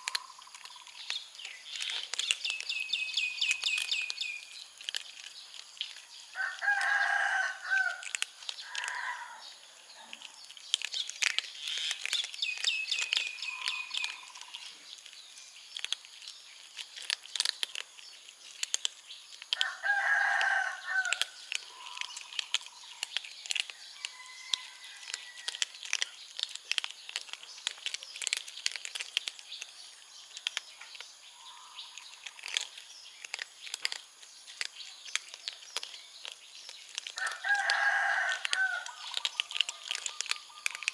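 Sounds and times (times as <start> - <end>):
kittens crunching kibble: 0.0 - 40.9
small birds chirping: 0.0 - 40.9
rooster crowing: 6.4 - 8.1, 19.6 - 21.2, 24.0 - 25.6, 37.2 - 39.0.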